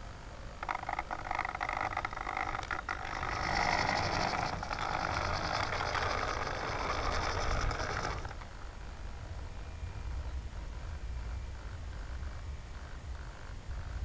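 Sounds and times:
servo clicks: 0.6 - 8.5
servo and turntable whirring: 0.6 - 8.6.

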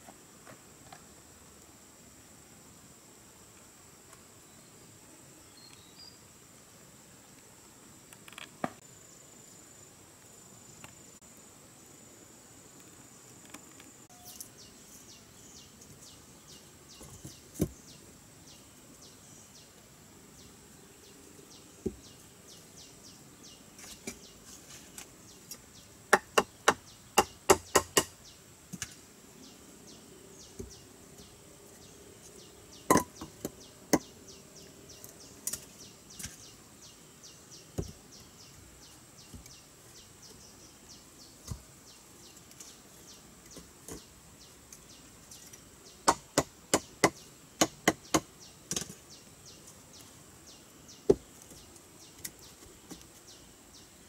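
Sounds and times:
wooden logs knocking together: 32.9 - 34.1.

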